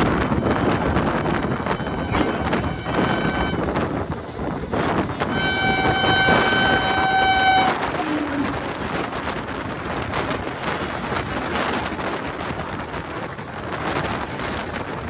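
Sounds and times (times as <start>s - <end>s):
train passing close by: 0.0s - 15.0s
locomotive horn: 0.2s - 3.8s, 5.1s - 8.9s.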